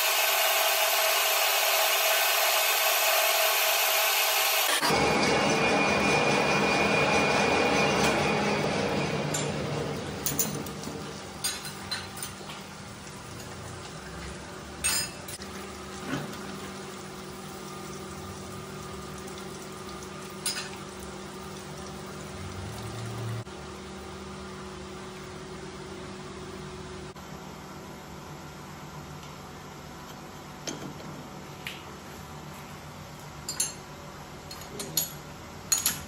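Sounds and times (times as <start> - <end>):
lathe humming: 0.0 - 9.9.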